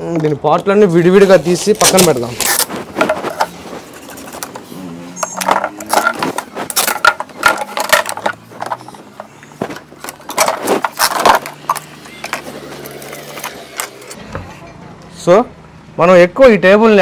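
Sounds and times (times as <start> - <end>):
plastic parts clattering and scraping: 0.0 - 14.2.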